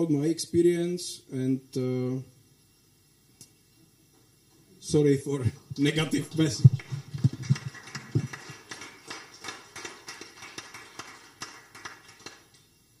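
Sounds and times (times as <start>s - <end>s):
audience applauding: 6.0s - 12.6s.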